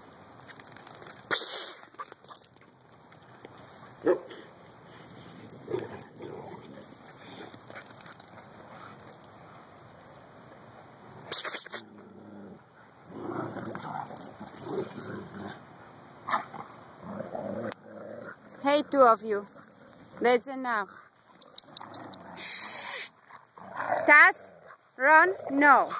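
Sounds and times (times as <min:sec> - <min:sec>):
dogs growling and whining: 0:11.6 - 0:15.6, 0:21.4 - 0:25.9.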